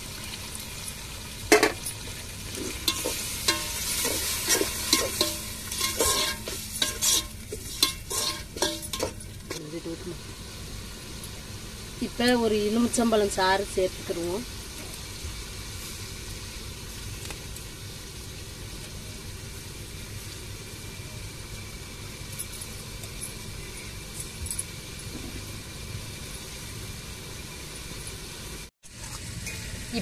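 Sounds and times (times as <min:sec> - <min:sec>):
wood fire rumbling: 0:00.0 - 0:23.2
faint fire crackles: 0:00.0 - 0:30.0.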